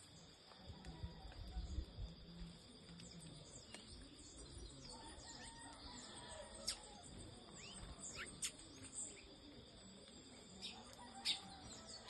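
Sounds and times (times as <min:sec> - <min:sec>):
faint insect trill: 0:00.0 - 0:12.0
small birds chirping: 0:02.4 - 0:12.0.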